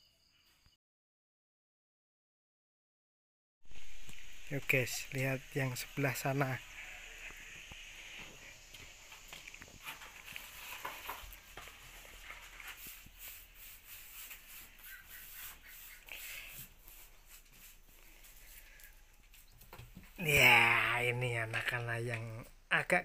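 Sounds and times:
faint bird chirps: 0:00.0 - 0:00.8, 0:14.7 - 0:16.4
faint footsteps: 0:06.8 - 0:13.2.

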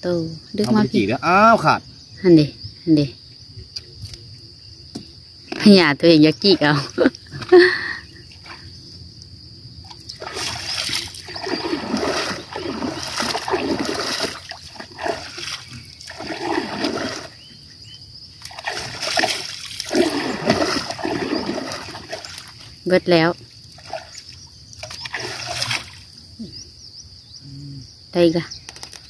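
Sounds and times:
water splashing around a boat: 0:09.8 - 0:17.4, 0:18.4 - 0:26.2.

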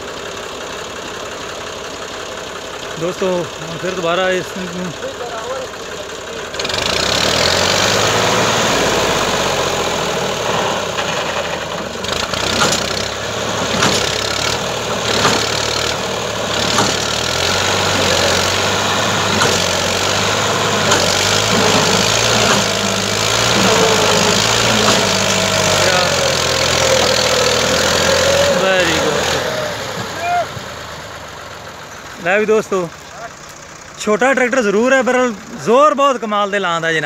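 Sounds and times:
tractor diesel engine under load: 0:00.0 - 0:37.0
sharp knocks: 0:12.5 - 0:13.1, 0:13.7 - 0:14.4, 0:15.1 - 0:15.7, 0:16.6 - 0:17.1, 0:19.3 - 0:19.8, 0:24.6 - 0:25.4.

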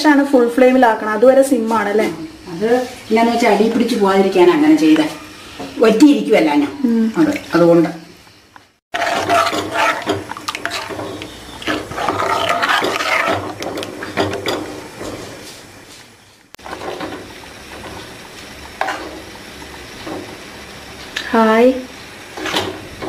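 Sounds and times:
spoon scraping clay pot: 0:08.9 - 0:15.3
liquid sloshing: 0:09.0 - 0:14.6.

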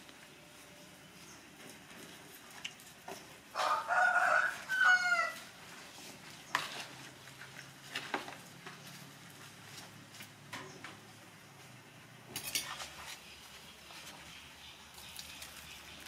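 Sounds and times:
rooster crowing: 0:03.5 - 0:05.5
spoon stirring in plastic bowl: 0:06.5 - 0:08.2.

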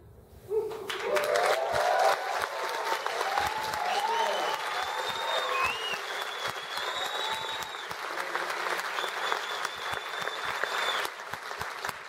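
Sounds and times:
audience applauding: 0:00.7 - 0:12.0
long high whistle: 0:03.4 - 0:08.0, 0:08.9 - 0:11.2.

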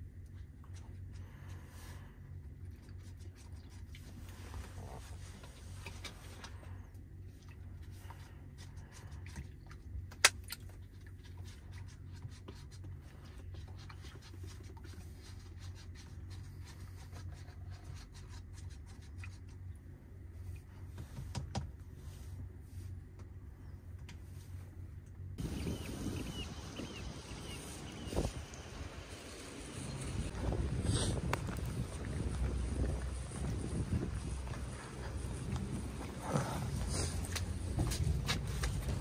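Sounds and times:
truck cab hum: 0:19.8 - 0:39.0.

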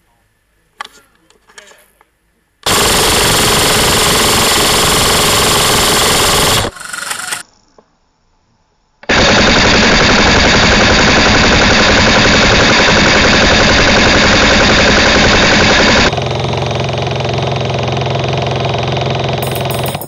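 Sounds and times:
rifle automatic fire: 0:02.6 - 0:07.4, 0:09.1 - 0:16.7.

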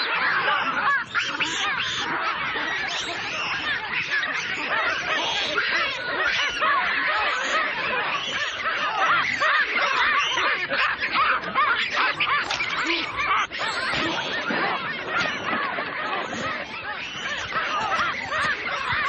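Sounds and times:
flock of birds chirping: 0:00.0 - 0:19.0.

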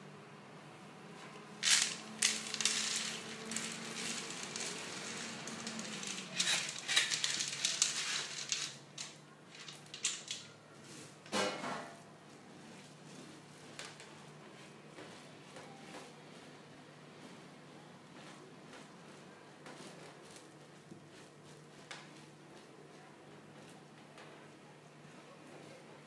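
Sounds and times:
beans rustling on cloth: 0:01.2 - 0:10.5
coffee beans rattling: 0:01.5 - 0:10.5.

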